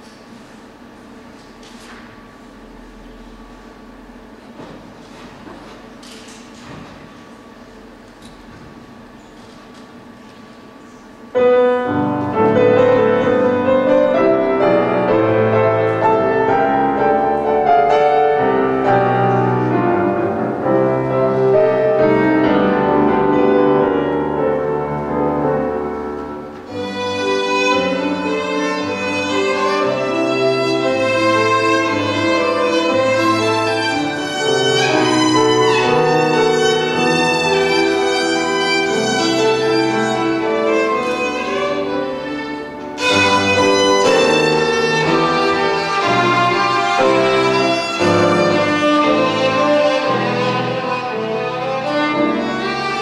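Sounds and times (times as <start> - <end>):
piano accompaniment: 0.0 - 53.0
violin: 11.5 - 53.0.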